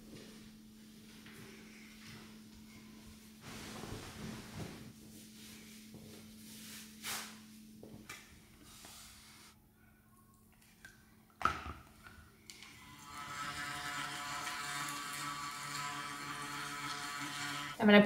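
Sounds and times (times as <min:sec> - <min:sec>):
electric toothbrush buzzing: 0:12.5 - 0:17.8.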